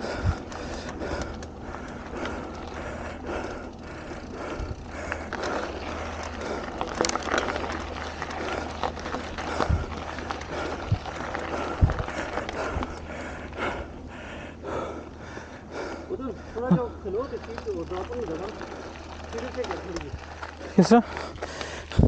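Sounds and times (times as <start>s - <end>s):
bike rattling: 0.0s - 22.0s
bike tyres crunching on gravel: 0.0s - 22.0s
wind rumble on microphone: 8.7s - 13.0s.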